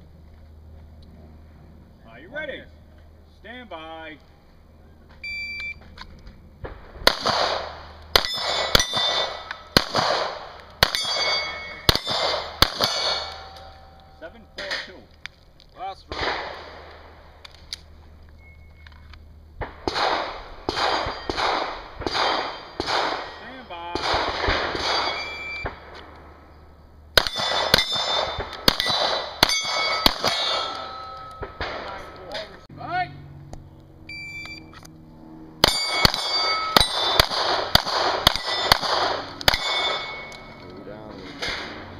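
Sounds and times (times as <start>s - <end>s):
pistol shots: 6.6s - 13.8s, 16.1s - 17.1s, 19.6s - 26.1s, 27.1s - 32.0s, 35.6s - 40.6s
steel plate target ringing: 8.1s - 9.8s, 10.8s - 15.0s, 20.7s - 23.8s, 24.8s - 25.6s, 27.2s - 32.6s, 35.6s - 40.7s.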